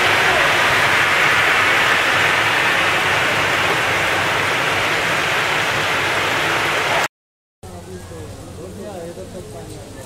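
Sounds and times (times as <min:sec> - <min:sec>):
heavy rain on pavement: 0:00.0 - 0:07.1.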